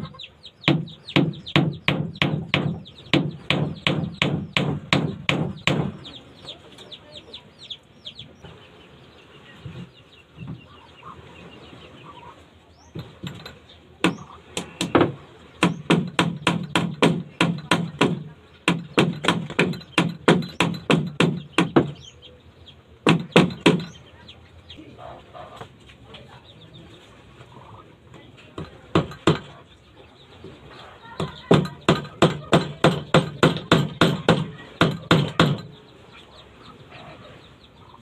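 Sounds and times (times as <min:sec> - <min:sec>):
hammer striking wooden planking: 0:00.6 - 0:06.1, 0:12.9 - 0:22.0, 0:23.0 - 0:24.0, 0:28.6 - 0:29.6, 0:31.2 - 0:35.8.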